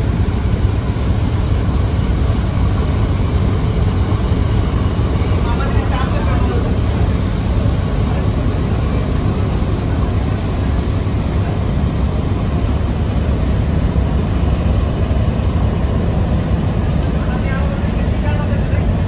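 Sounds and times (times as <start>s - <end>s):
deep boat engine rumble: 0.0s - 19.0s
rushing water from bow wave: 0.0s - 19.0s.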